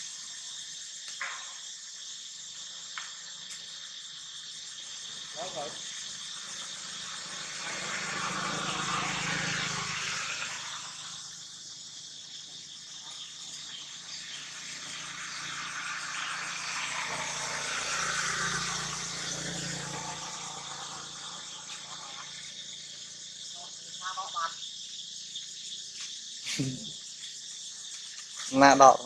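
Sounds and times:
high insect drone: 0.0 - 29.0
vehicles passing by: 5.0 - 24.5.

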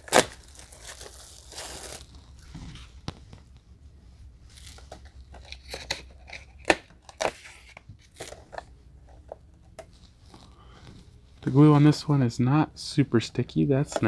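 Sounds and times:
plastic shrink wrap crinkling: 0.0 - 2.9.

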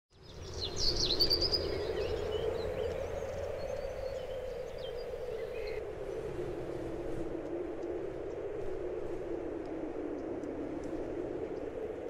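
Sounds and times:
birds chirping and trilling: 0.1 - 6.5
rushing forest ambience: 0.1 - 12.0.

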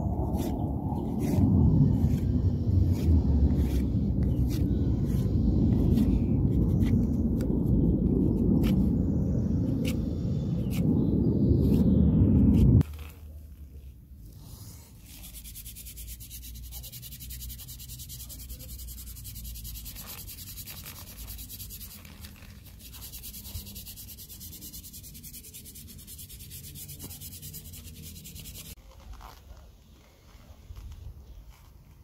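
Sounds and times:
sandpaper rasping on wood: 0.3 - 7.1, 14.5 - 28.8.

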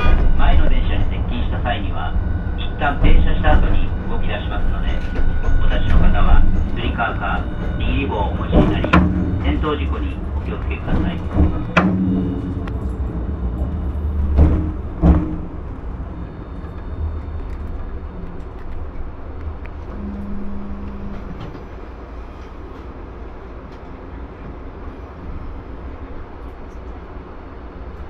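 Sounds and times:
streetcar running rumble: 0.0 - 28.0
loud clunks: 8.4 - 12.6, 14.2 - 15.7.

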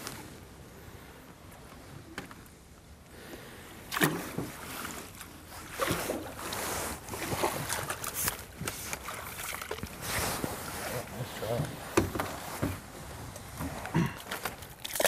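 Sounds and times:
fish splashing in water: 3.9 - 11.1, 14.2 - 15.0.

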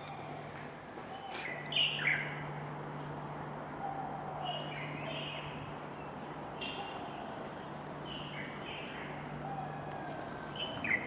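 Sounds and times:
small birds chirping: 1.1 - 2.4.

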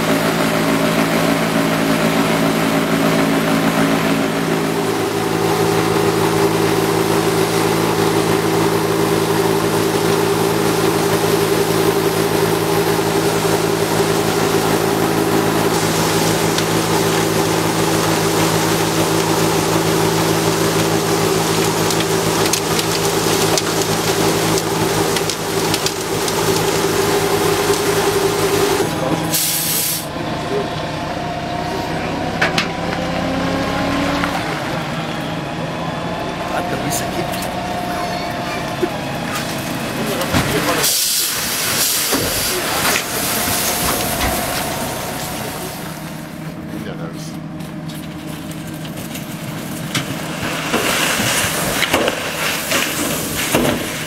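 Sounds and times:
snow blower machine drone: 0.0 - 54.0
hiss of spraying snow: 29.3 - 30.1, 40.8 - 43.8.

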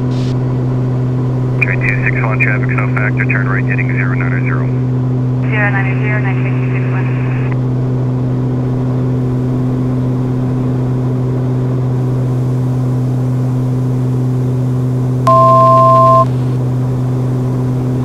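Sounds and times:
turboprop engines droning: 0.0 - 18.0
two-tone electronic beep: 15.3 - 16.3.

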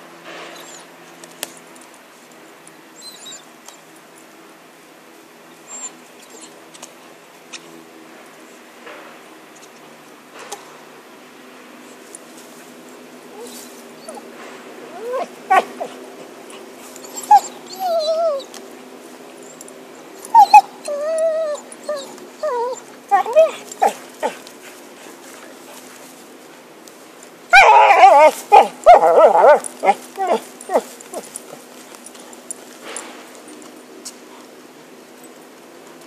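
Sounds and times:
dog whining and whimpering: 0.5 - 1.0, 3.0 - 3.5, 5.7 - 6.5, 13.3 - 14.3, 14.9 - 16.0, 17.0 - 18.6, 20.2 - 24.4, 27.5 - 31.5.

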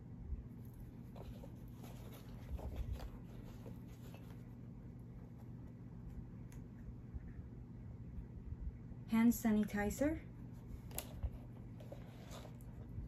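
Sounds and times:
cloth rustling: 0.7 - 5.6.

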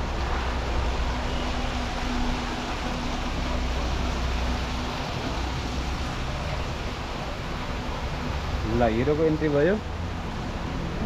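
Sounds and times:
steady rushing noise: 0.0 - 11.0.

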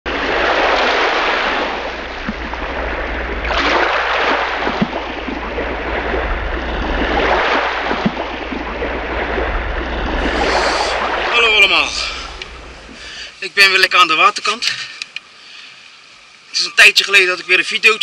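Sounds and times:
sea waves washing in: 0.1 - 13.9.

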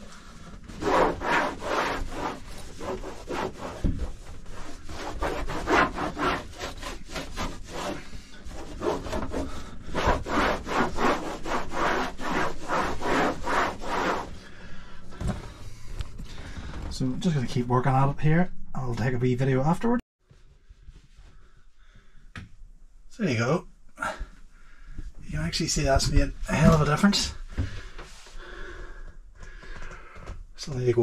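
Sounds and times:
cloth scrubbing fiberglass: 0.0 - 14.5.

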